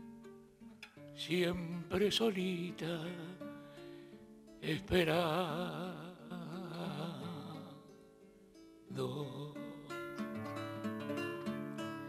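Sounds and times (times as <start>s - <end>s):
acoustic guitar notes: 0.0s - 12.0s
man singing with vibrato: 1.2s - 3.6s, 4.6s - 8.0s, 8.9s - 10.4s.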